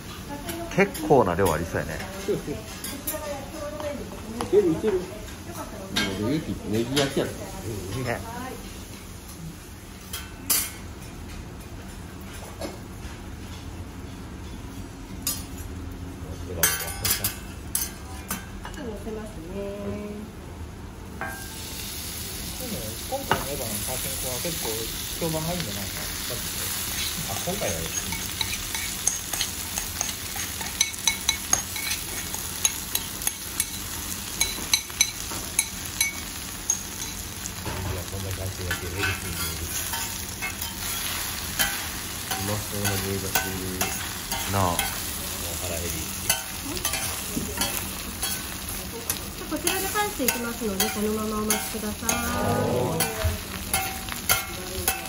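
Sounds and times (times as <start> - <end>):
batter sizzling on griddle: 21.2 - 55.0.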